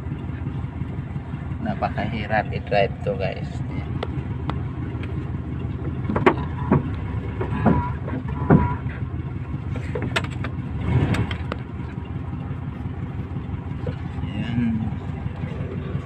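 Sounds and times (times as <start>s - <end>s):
car engine running: 0.0s - 16.0s
sharp knocks and clunks: 3.9s - 9.0s, 9.8s - 11.7s.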